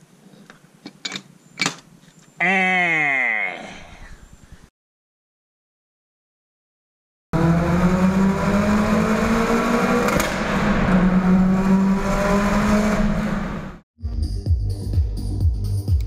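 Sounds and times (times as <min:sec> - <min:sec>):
turbocharged car engine accelerating: 0:07.4 - 0:13.8.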